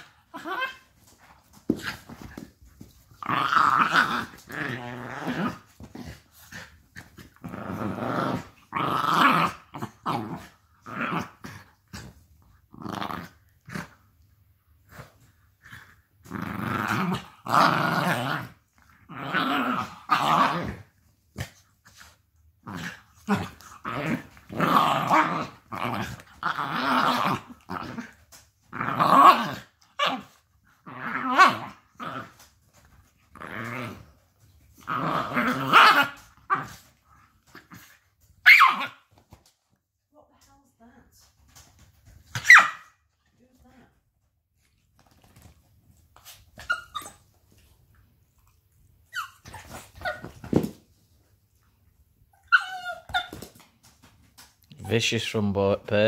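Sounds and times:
dogs growling while play-fighting: 0:00.0 - 0:14.2, 0:14.8 - 0:39.5.

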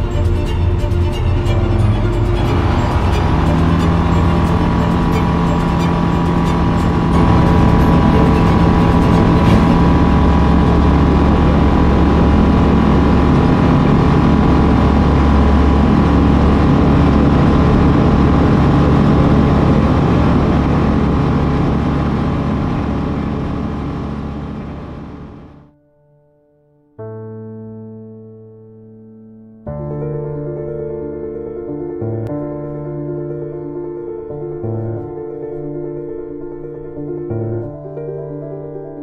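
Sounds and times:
airplane engine and propeller drone: 0:00.0 - 0:25.7.

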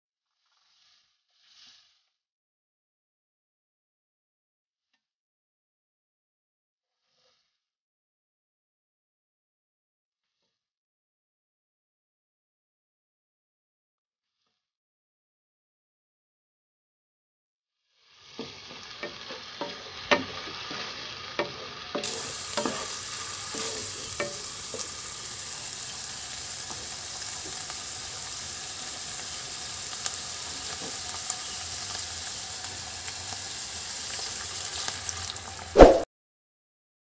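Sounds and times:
wooden spatula scraping a pan: 0:00.3 - 0:02.2, 0:07.0 - 0:07.6, 0:18.2 - 0:32.8
stock poured into hot pan: 0:00.4 - 0:02.2, 0:17.9 - 0:36.0
meat sizzling in a frying pan: 0:17.9 - 0:35.8.

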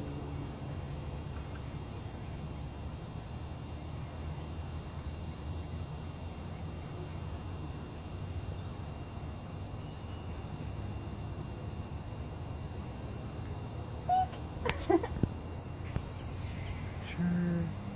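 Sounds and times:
crickets chirping: 0:00.0 - 0:17.9.

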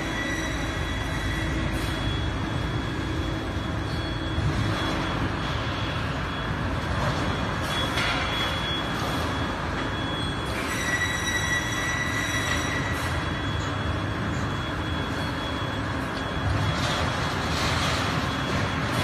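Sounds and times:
thin high whine: 0:07.4 - 0:17.0
rail cart rolling on steel rails: 0:07.4 - 0:19.0.

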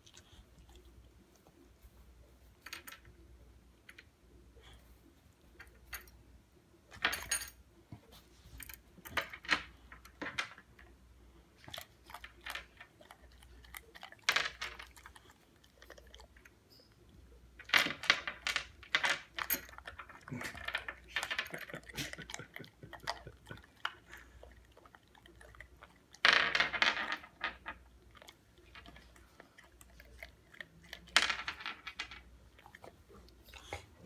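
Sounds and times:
pebbles clattering on a table: 0:09.1 - 0:10.9, 0:14.2 - 0:15.0, 0:17.6 - 0:22.5, 0:26.2 - 0:27.8, 0:31.0 - 0:32.3.

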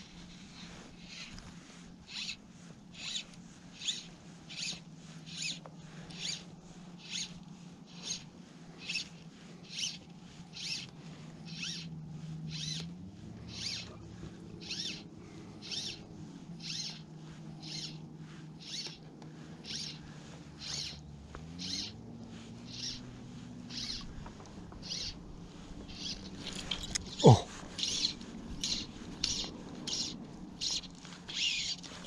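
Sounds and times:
fishing line rasping through rod guides: 0:12.5 - 0:21.0, 0:21.6 - 0:32.0.

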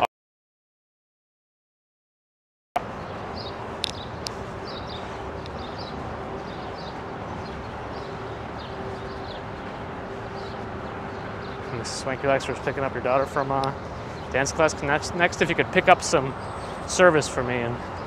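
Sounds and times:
city street noise: 0:02.8 - 0:18.0
small birds chirping: 0:02.8 - 0:18.0
sharp clicks: 0:03.8 - 0:04.4.

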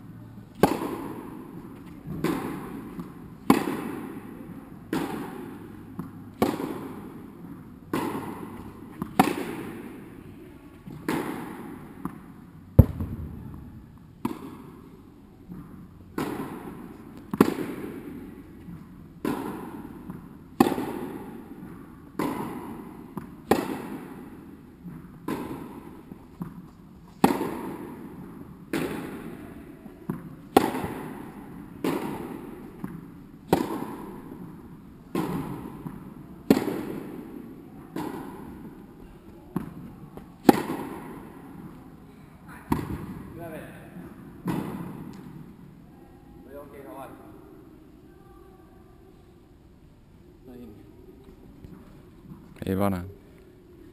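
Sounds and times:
tennis ball strikes echoing: 0:00.5 - 0:10.2, 0:10.9 - 0:14.9, 0:15.5 - 0:41.8, 0:42.7 - 0:45.4.

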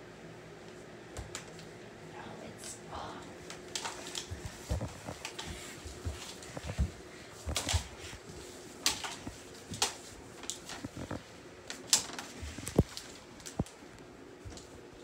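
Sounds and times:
people scuffling on wooden floor: 0:03.7 - 0:11.2.

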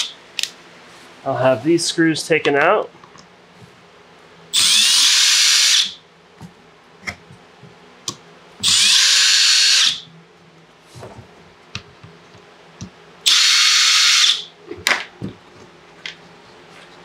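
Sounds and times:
power drill-driver whining: 0:04.6 - 0:06.0, 0:08.6 - 0:10.0, 0:13.3 - 0:14.5.

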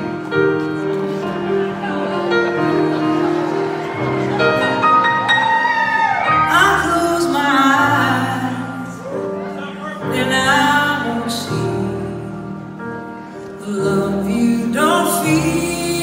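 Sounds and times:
woman singing ballad: 0:06.4 - 0:09.2, 0:10.0 - 0:12.8, 0:13.4 - 0:16.0.

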